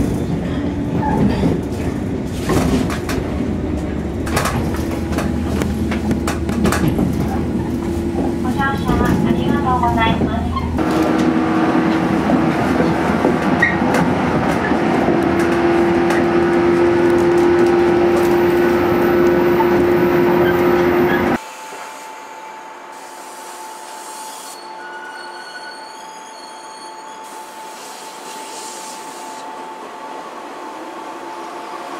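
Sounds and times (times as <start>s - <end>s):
wheel and rail noise: 0.0s - 21.4s
quiet hum of standing train: 0.0s - 24.6s, 27.3s - 31.9s
electric train motors humming: 3.1s - 24.0s.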